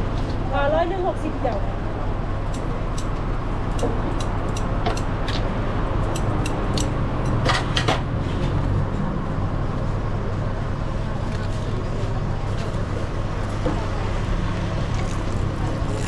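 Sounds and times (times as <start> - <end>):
low street rumble: 0.0 - 16.0
sharp clicks and clacks: 6.1 - 7.9.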